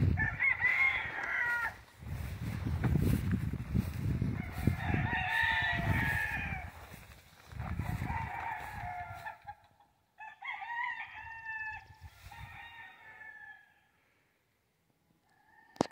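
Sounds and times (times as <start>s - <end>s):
rooster crowing: 0.0s - 2.3s, 3.8s - 9.5s, 10.2s - 14.0s.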